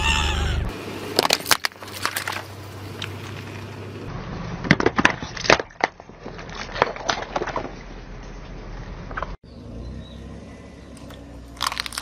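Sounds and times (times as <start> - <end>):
plastic toy cracking and crunching: 11.5 - 12.0.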